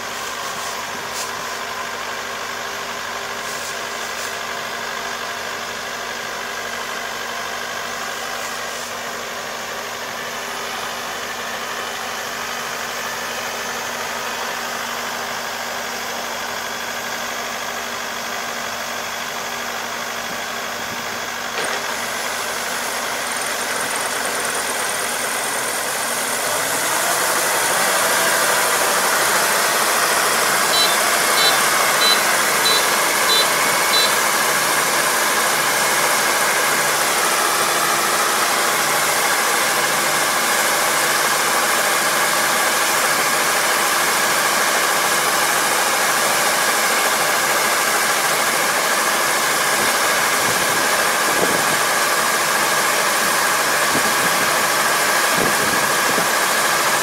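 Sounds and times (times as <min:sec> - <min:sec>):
combine harvester running: 0:00.0 - 0:57.0
high beeps: 0:30.7 - 0:34.2.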